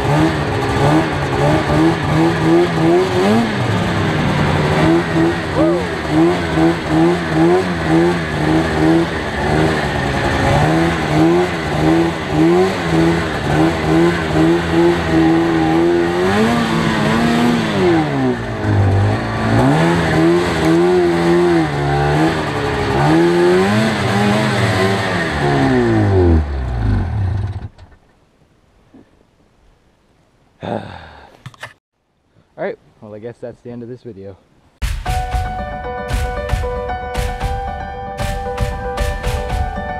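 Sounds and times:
snowmobile engine revving: 0:00.0 - 0:27.7.

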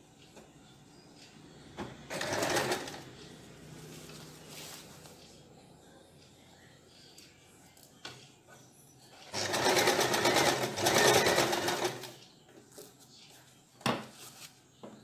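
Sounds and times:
sewing machine stitching: 0:02.1 - 0:03.0, 0:09.3 - 0:12.2.

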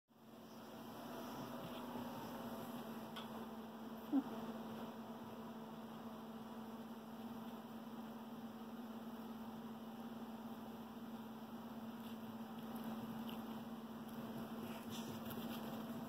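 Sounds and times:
low electrical hum: 0:00.1 - 0:16.0.

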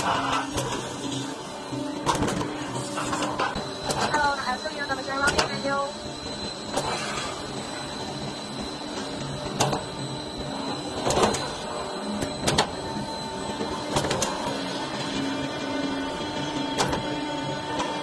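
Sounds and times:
high machine whine: 0:00.0 - 0:18.0
roll forming machine humming: 0:00.0 - 0:18.0.

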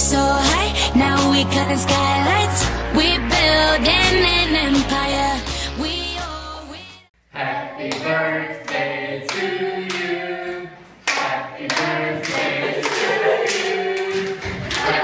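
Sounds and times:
group of people singing: 0:00.0 - 0:05.8, 0:07.3 - 0:15.0
backing song: 0:00.0 - 0:15.0
people clapping in time: 0:11.0 - 0:15.0.

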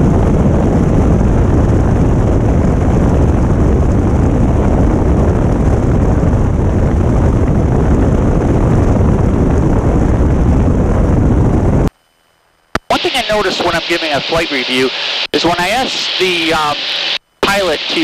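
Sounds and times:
wind rushing over microphone: 0:00.0 - 0:11.9, 0:12.9 - 0:18.0
airplane engine drone: 0:12.7 - 0:18.0.

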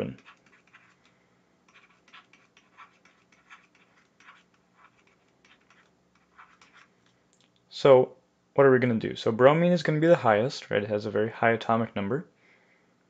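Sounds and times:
stylus scratching on tablet: 0:00.0 - 0:01.1, 0:01.7 - 0:07.0
faint low hum: 0:00.0 - 0:13.0.

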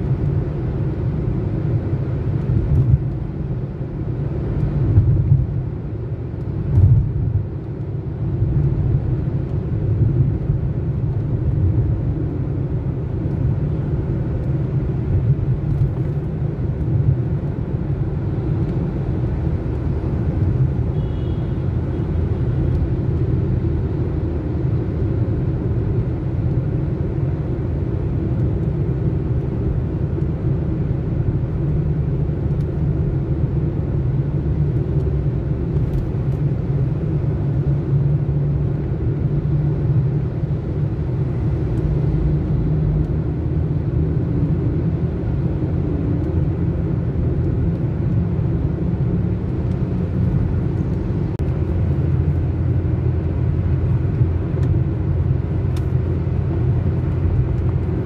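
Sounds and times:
road and engine noise in car: 0:00.0 - 0:58.0.

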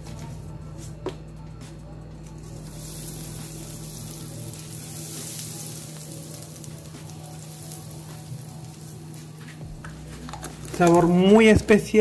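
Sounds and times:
spice sizzling in hot fat: 0:02.4 - 0:12.0.

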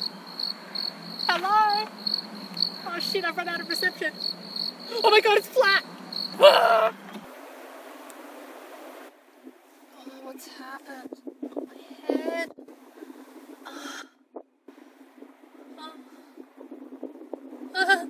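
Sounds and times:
high pulsing chirp: 0:00.0 - 0:06.9
faint steady hiss: 0:00.0 - 0:18.0.

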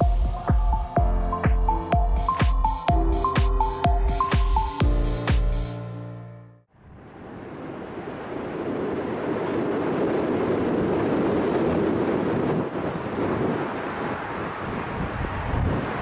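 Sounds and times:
jet engines at takeoff thrust: 0:06.9 - 0:16.0.

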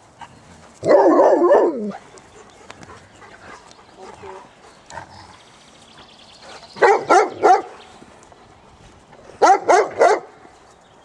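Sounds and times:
dog barking: 0:06.8 - 0:07.7, 0:09.4 - 0:10.3.

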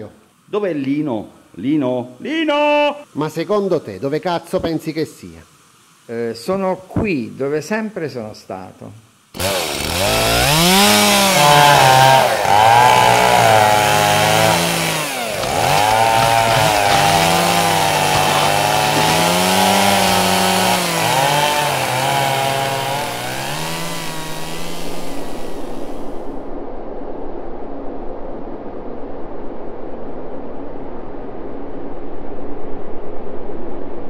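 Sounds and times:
chainsaw engine revving: 0:09.3 - 0:26.2.

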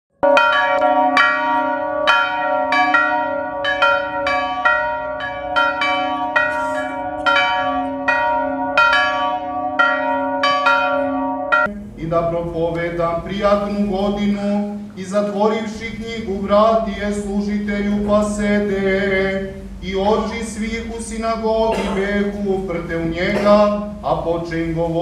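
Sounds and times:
church bells ringing: 0:00.2 - 0:11.9
steady low hum: 0:11.7 - 0:25.0.

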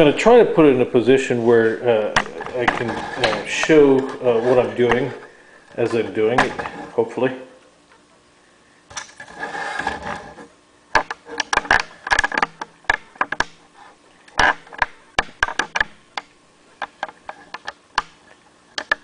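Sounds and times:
sharp irregular clicks and knocks: 0:10.9 - 0:13.6, 0:14.3 - 0:19.0.

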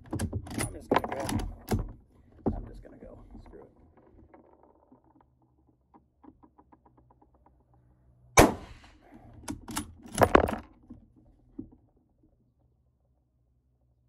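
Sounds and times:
rifle shot: 0:08.4 - 0:09.0.

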